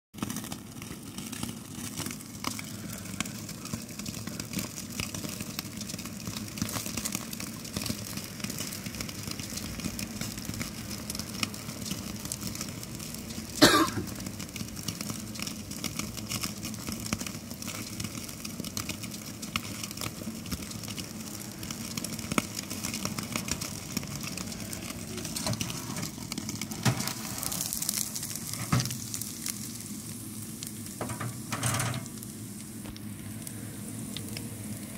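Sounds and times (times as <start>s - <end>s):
steak sizzling and spitting: 0.2s - 34.9s.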